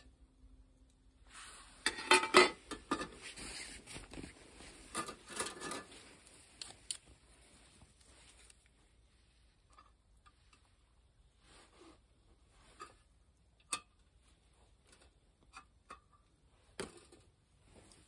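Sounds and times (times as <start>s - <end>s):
rustling: 1.2s - 13.4s, 16.2s - 18.0s
metal mess tins clattering: 1.8s - 3.2s, 4.9s - 6.0s.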